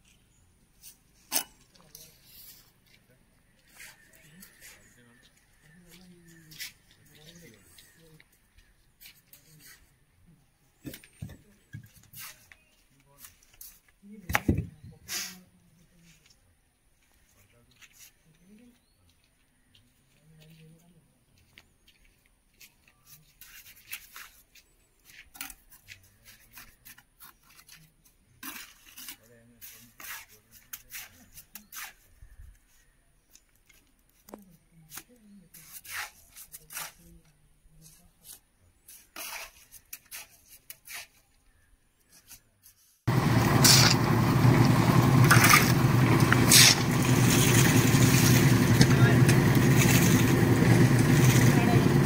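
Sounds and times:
mortar scraping on stone: 0:25.2 - 0:32.1, 0:38.2 - 0:41.3, 0:43.6 - 0:44.0, 0:45.4 - 0:50.3
concrete mixer engine running: 0:43.1 - 0:52.0.

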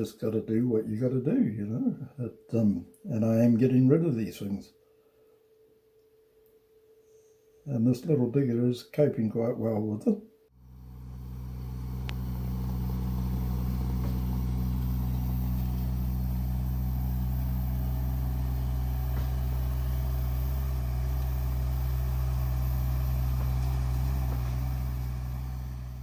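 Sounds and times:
excavator engine humming: 0:10.6 - 0:26.0.

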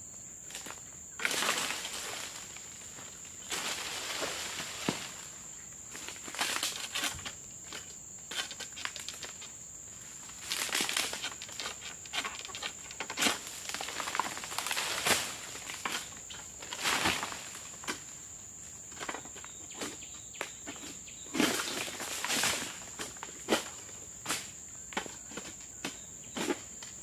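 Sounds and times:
fronds rustling and crunching: 0:00.5 - 0:25.5
sharp snaps of fronds: 0:13.2 - 0:16.1.

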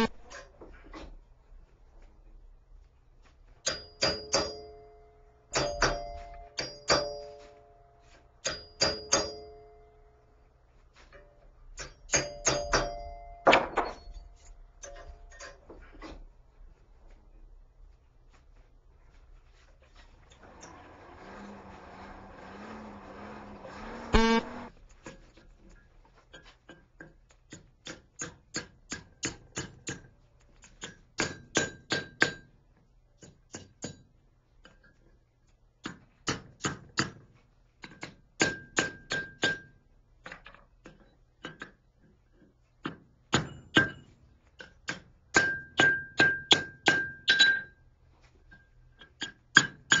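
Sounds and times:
hammer striking steel on anvil: 0:03.6 - 0:07.6, 0:08.4 - 0:09.9, 0:11.2 - 0:14.2, 0:30.8 - 0:32.5, 0:38.0 - 0:39.7, 0:43.3 - 0:47.8.

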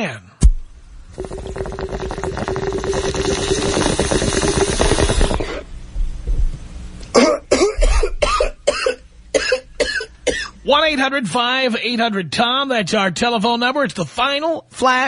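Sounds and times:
water bubbling through a bong: 0:00.4 - 0:05.9
person coughing: 0:07.1 - 0:10.6.

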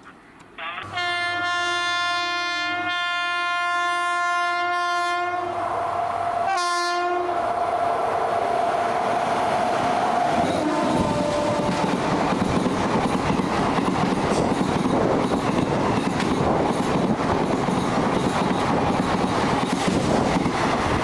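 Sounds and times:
locomotive horn blast: 0:00.6 - 0:05.6, 0:06.3 - 0:07.6, 0:10.4 - 0:12.0
train running past: 0:00.8 - 0:21.0.

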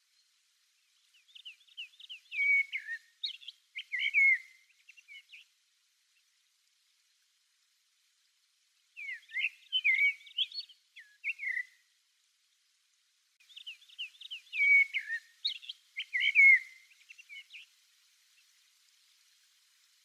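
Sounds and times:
blackbird singing: 0:01.0 - 0:05.5, 0:09.0 - 0:11.8, 0:13.4 - 0:17.7.

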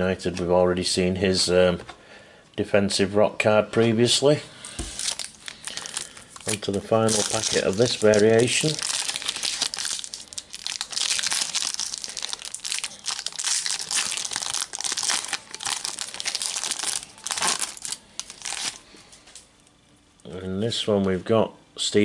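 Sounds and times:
foil wrapper crinkling: 0:04.6 - 0:19.5
foil packet tearing open: 0:04.7 - 0:18.8.

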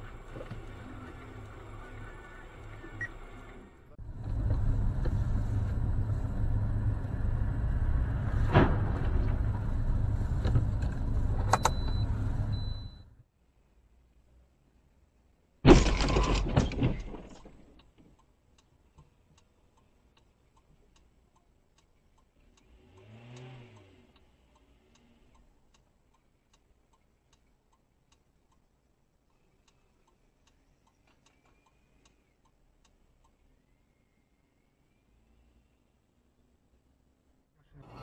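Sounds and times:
car crash impact with crunching: 0:08.4 - 0:09.5, 0:15.6 - 0:17.7
faint regular ticking: 0:17.7 - 0:35.0.

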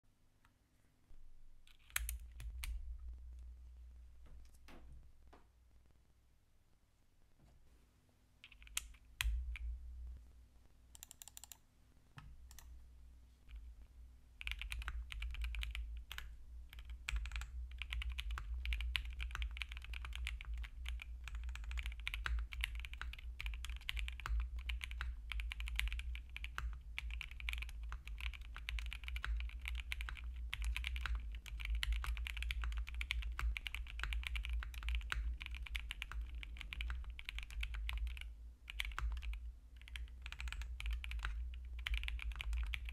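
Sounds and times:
mechanical keyboard typing: 0:01.7 - 0:02.7, 0:08.4 - 0:09.7, 0:11.0 - 0:11.6, 0:14.4 - 0:42.9.

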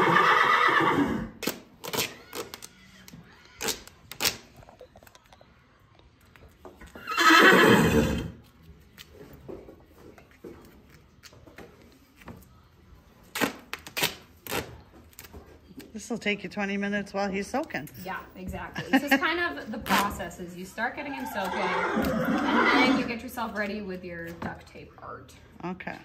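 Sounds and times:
horse neighing: 0:00.0 - 0:01.4, 0:06.9 - 0:08.4, 0:20.9 - 0:23.2
duct tape ripping off roll: 0:01.4 - 0:04.7, 0:13.3 - 0:15.3.

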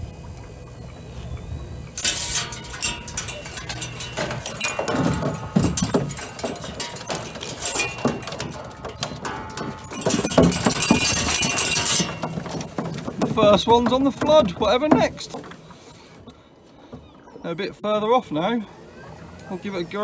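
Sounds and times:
hooks and line clicking over roller: 0:01.9 - 0:16.4.

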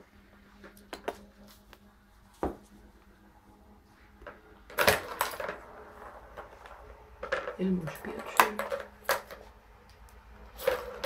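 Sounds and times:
plastic toy balls clicking: 0:07.2 - 0:11.0.

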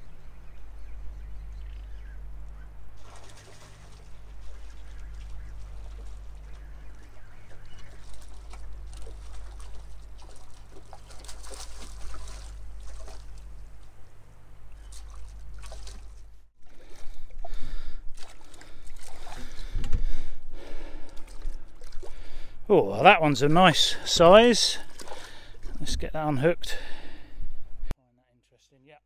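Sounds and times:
steady low rumble: 0:00.0 - 0:24.2
fish splashing in water: 0:03.0 - 0:14.0, 0:14.8 - 0:19.8, 0:20.8 - 0:22.4, 0:24.8 - 0:25.8.

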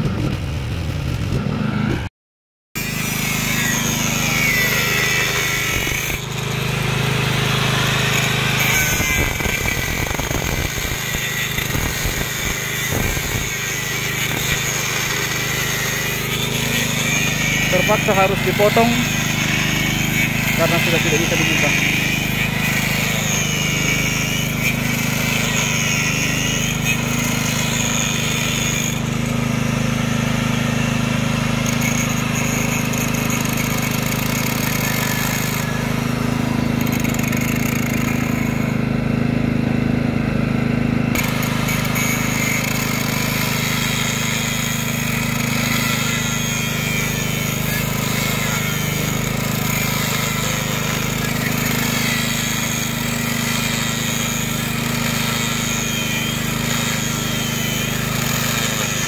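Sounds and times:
angle grinder cutting metal: 0:02.8 - 0:59.0
small engine humming: 0:02.8 - 0:59.0.

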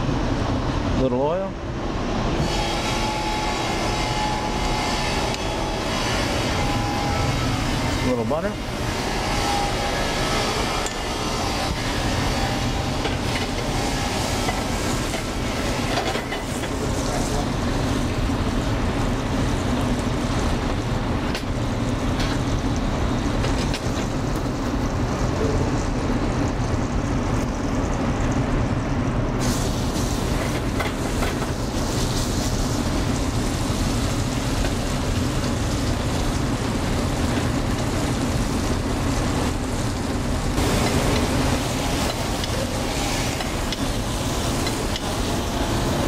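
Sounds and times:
kitchen ventilation drone: 0:00.0 - 0:46.0
steak sizzling in a skillet: 0:08.6 - 0:22.8, 0:29.4 - 0:46.0.

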